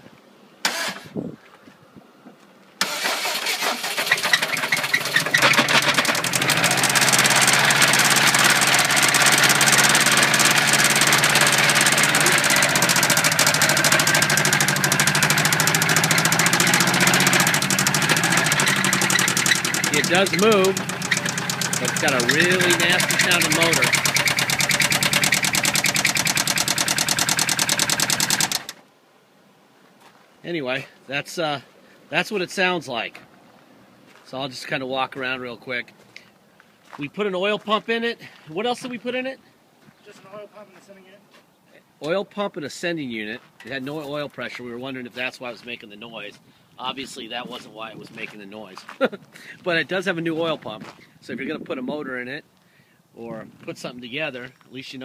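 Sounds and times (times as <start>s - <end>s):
car engine starting and idling: 2.8s - 28.8s.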